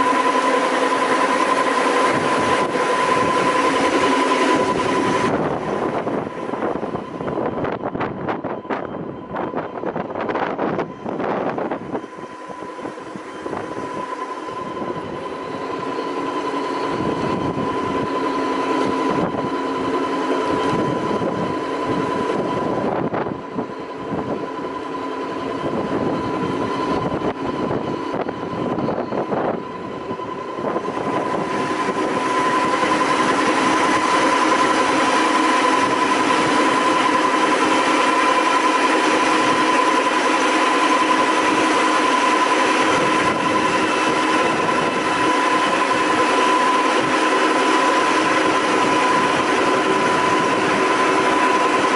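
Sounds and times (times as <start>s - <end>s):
sanding machine whirring: 0.0s - 7.8s, 9.5s - 51.9s.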